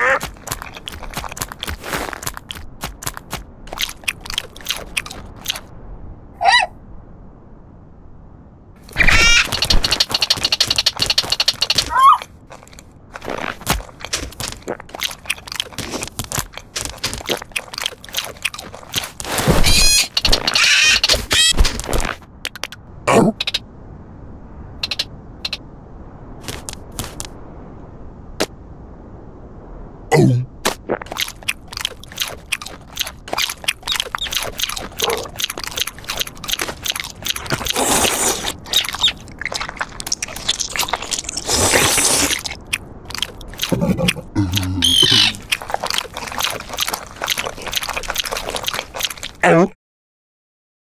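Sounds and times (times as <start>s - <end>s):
crunchy chewing: 0.0s - 5.7s, 8.9s - 22.2s, 31.0s - 49.4s
cartoon seabird squawking: 9.0s - 12.2s, 19.6s - 21.6s, 44.8s - 45.4s.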